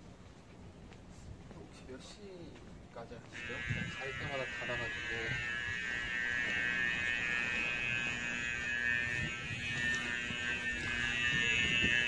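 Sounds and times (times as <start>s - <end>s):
high-pitched buzzing drone: 3.3s - 12.0s.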